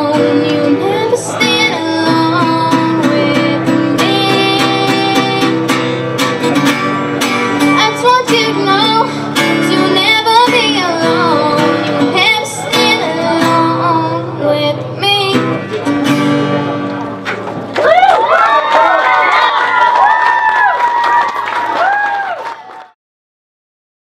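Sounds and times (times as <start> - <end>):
girl singing: 0.0 - 6.7, 7.6 - 16.3
acoustic guitar strumming: 0.0 - 17.7.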